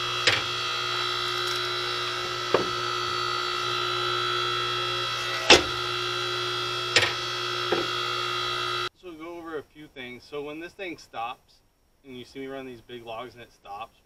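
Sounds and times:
log splitter motor whining hum: 0.0 - 8.9
sharp wooden knocks: 2.5 - 2.8.

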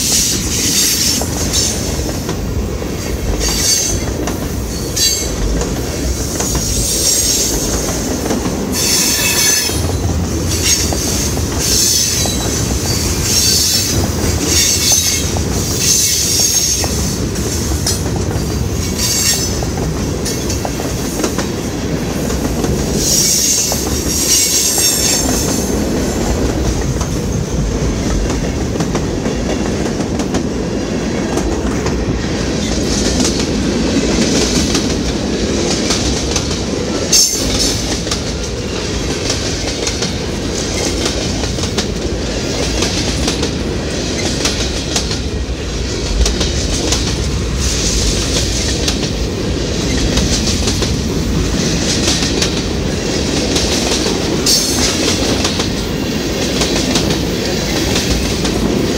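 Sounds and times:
freight train wheels rumbling: 0.0 - 58.9
wheels clickety-clack over joints: 0.4 - 30.5, 31.2 - 58.9.

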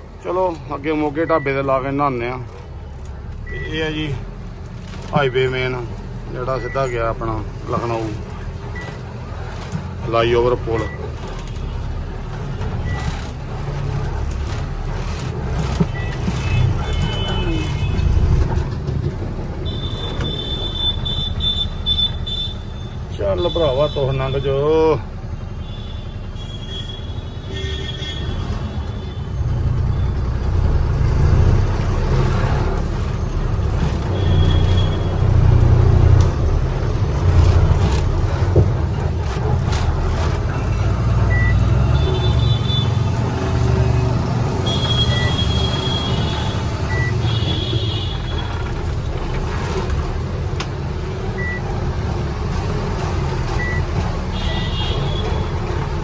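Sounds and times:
traffic beeps and toots: 1.2 - 2.0, 3.4 - 4.2, 6.4 - 7.2, 10.7 - 11.5, 12.8 - 13.3, 15.7 - 18.2, 19.6 - 24.5, 33.8 - 35.6, 40.7 - 43.1, 44.0 - 48.6, 51.3 - 51.7, 53.5 - 55.6.

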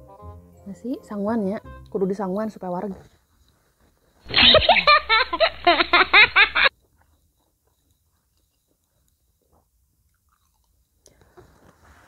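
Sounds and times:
rhythmic giggling sound effect: 4.3 - 6.7.

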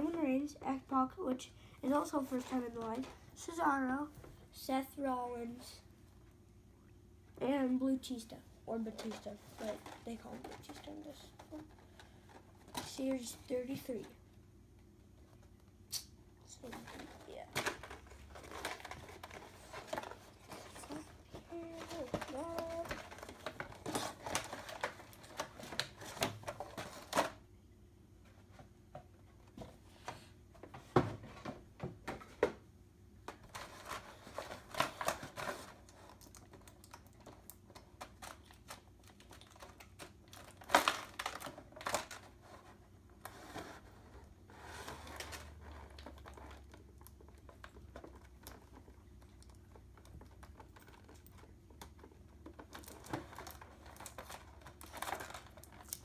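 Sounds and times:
packaging clicking and rustling: 16.6 - 27.4, 33.3 - 43.8, 44.8 - 56.0.

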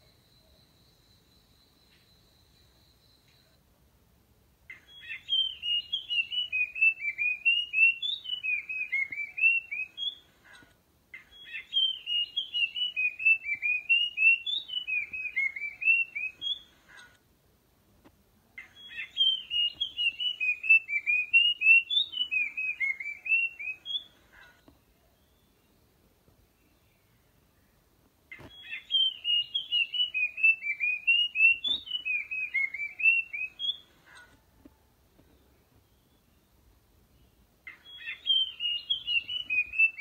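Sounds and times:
bird singing whistled notes: 0.0 - 3.6, 4.7 - 10.3, 11.2 - 16.7, 18.6 - 24.1, 28.3 - 33.9, 35.4 - 40.0.

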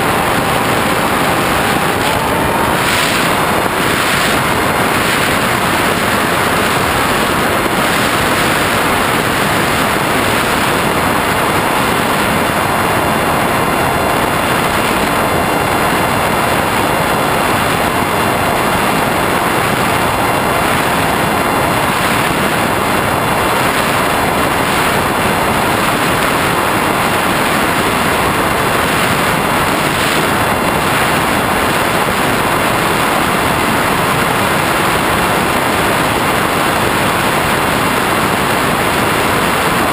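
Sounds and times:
propeller motor whine: 0.0 - 39.9
wind rushing over microphone: 0.0 - 39.9.

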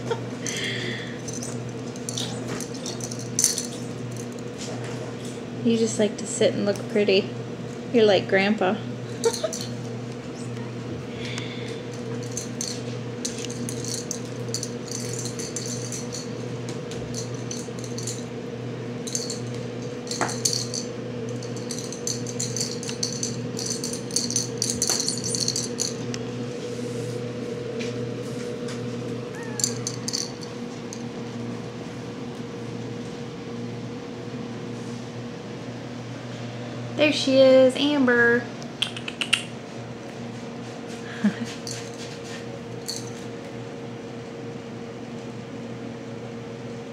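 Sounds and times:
low electrical hum: 0.0 - 46.9
cat toy rattling and jingling: 0.4 - 4.6, 9.2 - 9.8, 11.9 - 18.3, 19.0 - 26.1, 29.4 - 31.1, 41.5 - 43.2.

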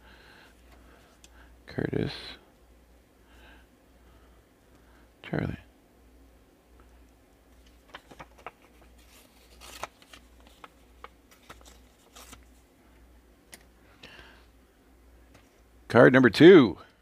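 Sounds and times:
faint low hum: 0.0 - 17.0
trading cards clicking and rustling: 7.6 - 12.6.

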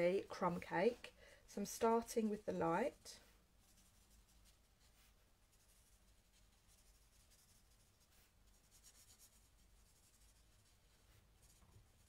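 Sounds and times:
marker scratching on card: 3.6 - 12.0.

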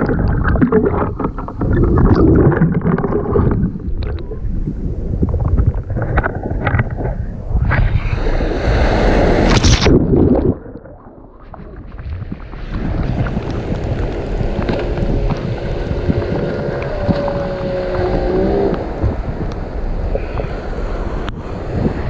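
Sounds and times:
shallow surf washing: 0.0 - 22.0
wave breaking: 0.0 - 22.0
motorboat engine drone: 13.4 - 21.2.

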